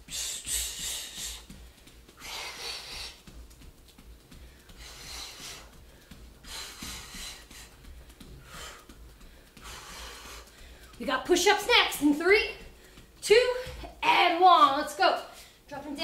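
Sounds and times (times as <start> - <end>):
woman's forceful breaths out: 0.0 - 3.3, 4.3 - 11.0.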